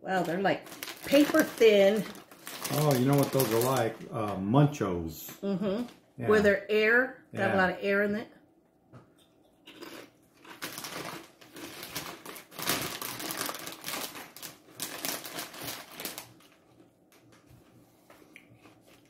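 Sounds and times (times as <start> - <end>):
crisps crunching while chewed: 0.5 - 4.4, 9.7 - 19.0.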